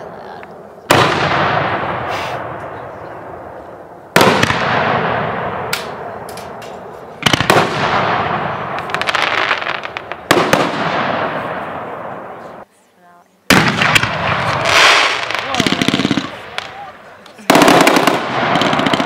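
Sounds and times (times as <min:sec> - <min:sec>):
firework crackles: 0:07.1 - 0:12.7, 0:13.5 - 0:19.0
firework shells bursting: 0:13.5 - 0:19.0.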